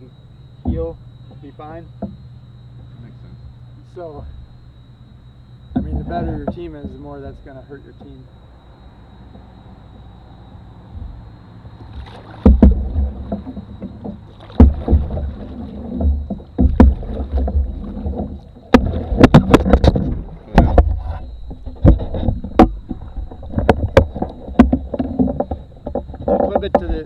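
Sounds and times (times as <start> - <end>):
paddles knocking canoe hull: 0.0 - 4.4, 5.1 - 8.5, 9.2 - 27.0
paddles stirring water: 10.6 - 27.0.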